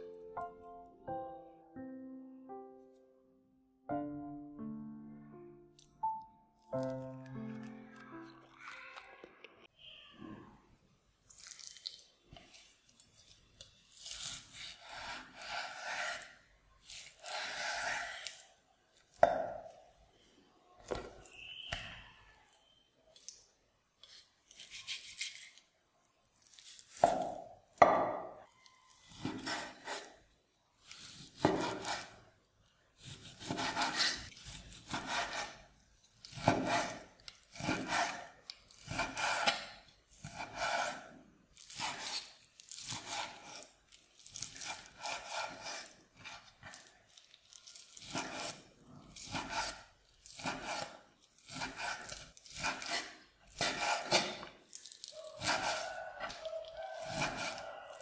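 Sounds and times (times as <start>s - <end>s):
knife slicing meat on wood board: 13.9s - 18.4s, 24.0s - 25.6s, 29.0s - 30.1s, 30.8s - 32.2s, 33.0s - 35.6s, 36.2s - 43.7s, 44.3s - 46.8s, 47.8s - 54.5s, 55.3s - 58.0s.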